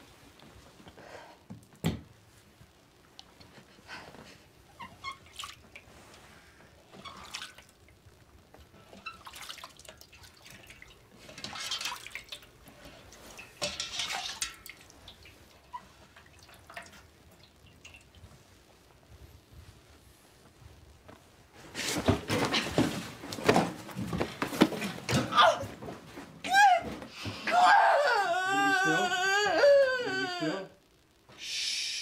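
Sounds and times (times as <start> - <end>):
water splashing and dripping: 5.2 - 5.8, 9.0 - 18.4.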